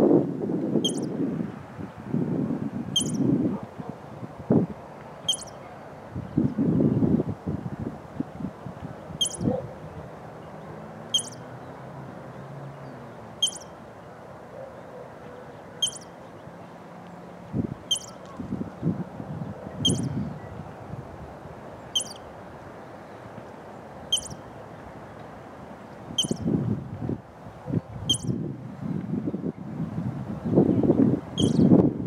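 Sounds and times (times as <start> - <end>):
squirrel alarm chirps: 0.8 - 1.1, 3.0 - 3.3, 5.2 - 5.6, 9.2 - 9.5, 11.1 - 11.4, 13.4 - 13.7, 15.8 - 16.1, 17.9 - 18.2, 19.8 - 20.1, 21.9 - 22.2, 24.1 - 24.4, 26.2 - 26.5, 28.1 - 28.4, 31.4 - 31.7.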